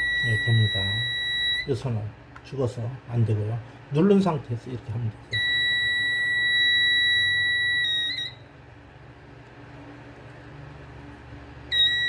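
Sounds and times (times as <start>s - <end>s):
high-pitched detector beep: 0.0s - 1.7s, 5.3s - 8.4s, 11.7s - 12.0s.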